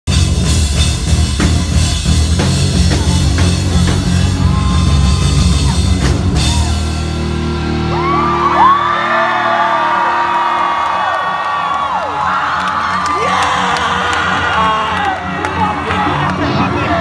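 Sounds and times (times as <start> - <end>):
pounding drums: 0.1 - 7.2
live rock band playing: 0.1 - 17.0
crowd whooping: 4.1 - 17.0.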